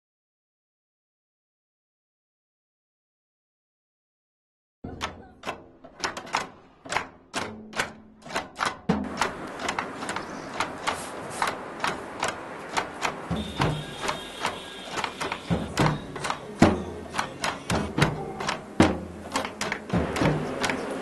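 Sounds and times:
sharp clacks: 4.9s - 21.0s.

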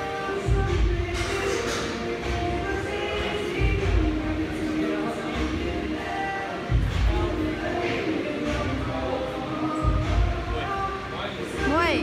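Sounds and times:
music with heavy bass beat: 0.4s - 4.6s, 6.6s - 7.5s.

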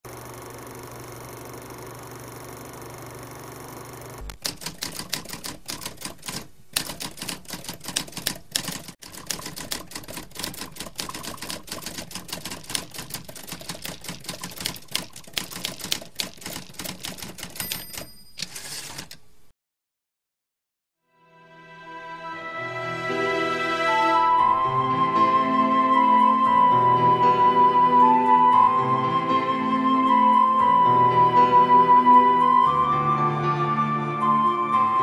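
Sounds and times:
typewriter keys clacking: 4.2s - 19.2s
typewriter bell ding: 16.8s - 19.2s.

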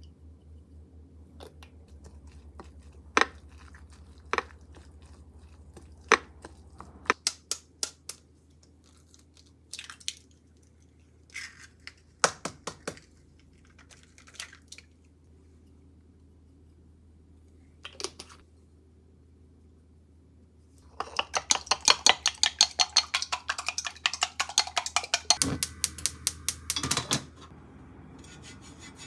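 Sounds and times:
kitchen handling clicks and knocks: 26.7s - 27.4s.

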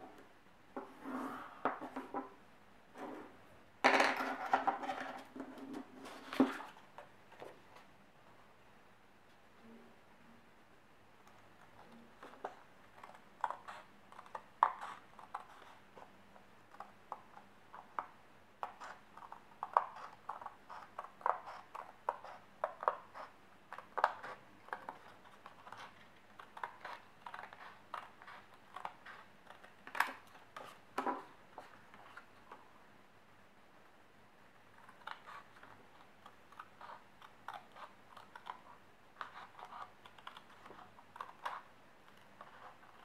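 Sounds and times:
scissors snipping paper: 11.7s - 15.8s, 16.7s - 30.8s, 34.7s - 43.0s.

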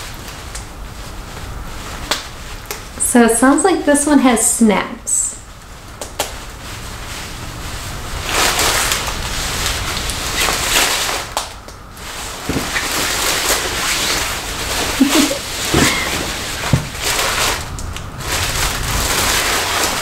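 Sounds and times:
fabric cape rustling: 5.7s - 20.0s.

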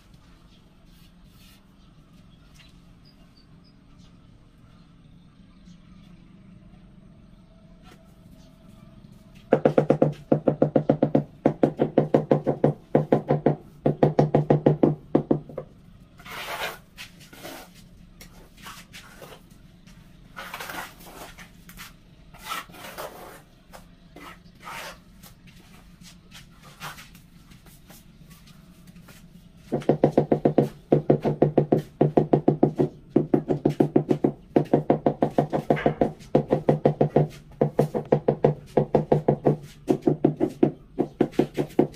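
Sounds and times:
trowel scraping mortar: 16.2s - 19.5s, 20.3s - 25.3s.

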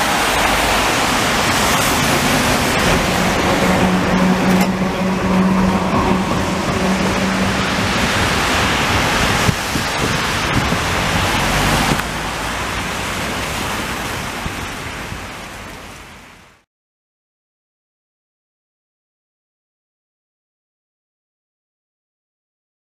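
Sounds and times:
tram humming past: 0.0s - 16.4s
car tyres hissing on wet road: 0.0s - 16.6s.

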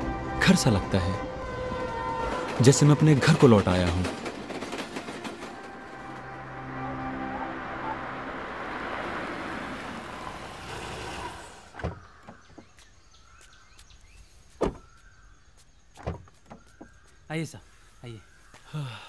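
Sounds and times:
car driving on dirt road: 5.5s - 13.0s
faint bird chirps: 11.3s - 19.0s.

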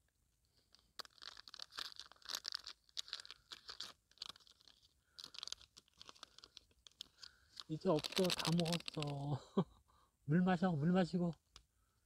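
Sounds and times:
cat crunching and chewing: 0.8s - 9.2s.

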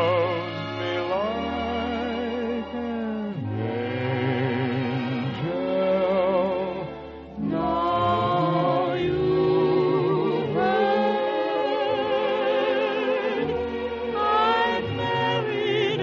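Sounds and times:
choir singing held notes: 7.4s - 16.0s.

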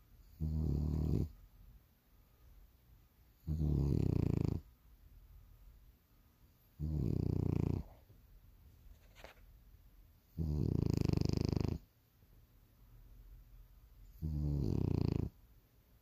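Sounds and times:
dog snoring: 0.3s - 1.4s, 3.4s - 4.7s, 6.8s - 8.0s, 10.3s - 11.9s, 14.1s - 15.4s.

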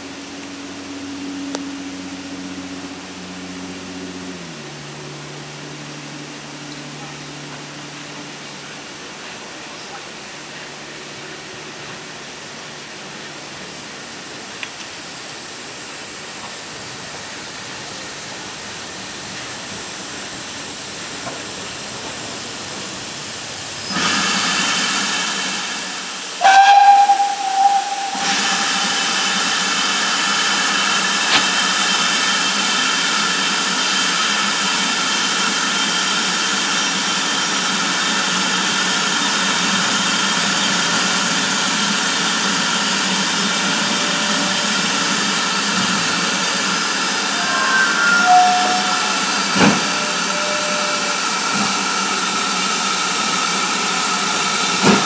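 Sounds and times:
steam hissing: 16.0s - 55.0s
steam whistle blast: 26.4s - 30.6s, 43.4s - 52.5s.

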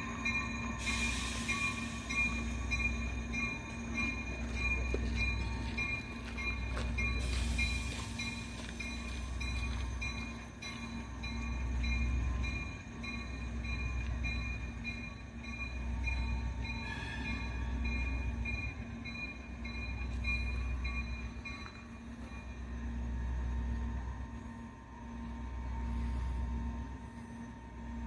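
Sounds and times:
locomotive bell ringing: 0.0s - 24.6s
diesel locomotive engine rumble: 0.0s - 28.0s.

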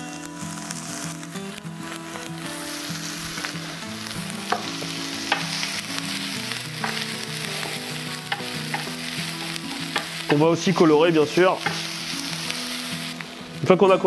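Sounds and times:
onions sizzling in frying pan: 0.0s - 14.0s
wooden spatula knocking pan: 6.8s - 10.5s, 11.6s - 11.8s.

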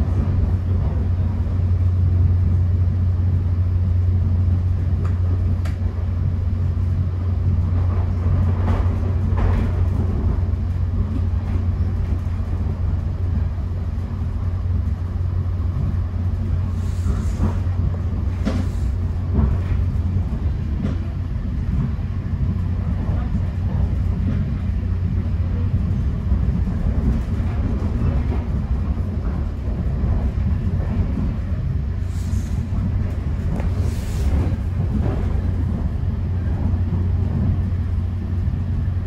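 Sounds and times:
train wheels rumbling on track: 0.0s - 39.0s.

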